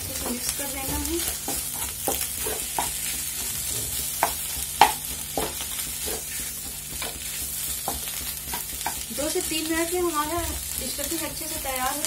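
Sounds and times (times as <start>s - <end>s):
light sizzle of frying: 0.0s - 12.0s
spatula knocking against pan: 0.2s - 9.4s.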